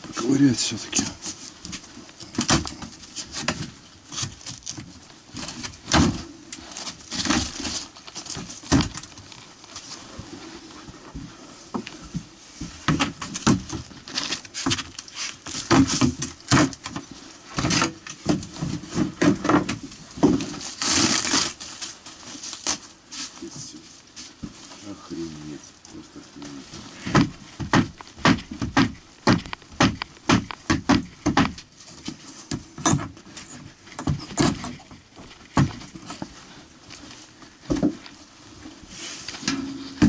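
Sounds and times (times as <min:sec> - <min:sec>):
foil insulation crinkling: 0:00.0 - 0:11.2, 0:11.9 - 0:40.0.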